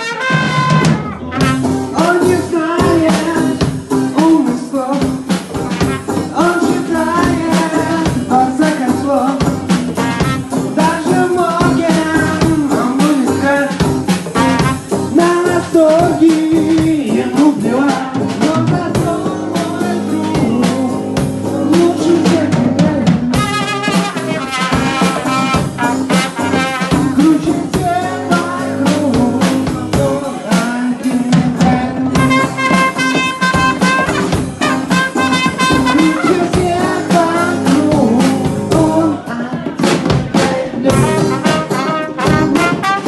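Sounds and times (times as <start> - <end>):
trumpet: 0.0 - 3.4, 5.5 - 7.7, 9.8 - 12.0, 14.3 - 15.9, 23.3 - 29.0, 32.1 - 37.6, 40.9 - 43.0
drum kit: 0.0 - 43.0
electric guitar: 0.0 - 43.0
person singing: 0.0 - 43.0.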